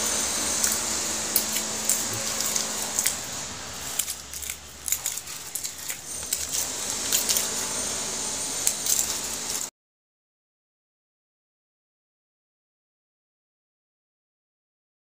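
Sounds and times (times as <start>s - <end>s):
knife scraping fish scales: 0.0s - 9.7s.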